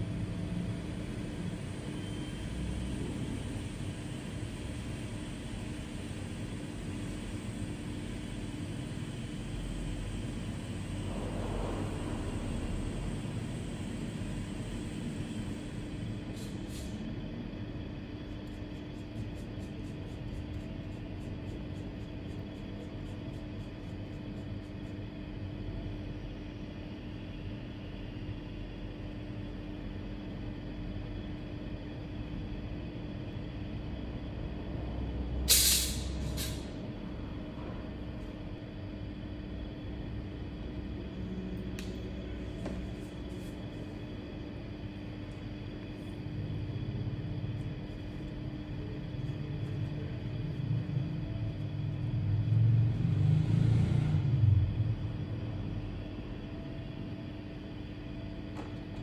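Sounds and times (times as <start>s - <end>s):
electrical machine hum: 0.0s - 59.0s
loud air hisses: 2.5s - 17.0s, 35.5s - 36.8s.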